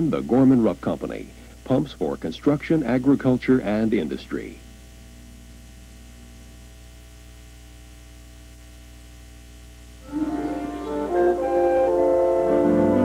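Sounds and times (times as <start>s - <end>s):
low steady hum: 0.0s - 13.0s
sustained keyboard chords: 10.0s - 13.0s.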